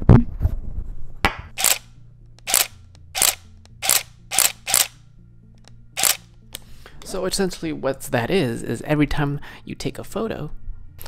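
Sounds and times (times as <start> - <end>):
camera shutter clacking: 1.6 - 1.8, 2.4 - 5.0, 6.0 - 6.2.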